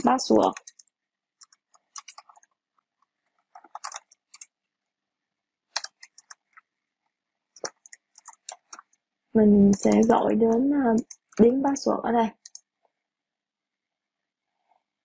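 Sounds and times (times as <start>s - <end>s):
faint keyboard typing: 0.0s - 4.6s, 5.7s - 6.7s, 7.5s - 12.7s.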